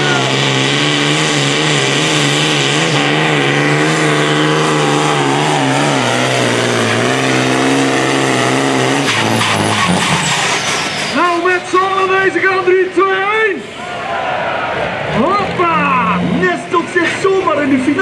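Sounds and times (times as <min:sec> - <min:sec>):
tractor diesel engine under load: 0:00.0 - 0:18.0.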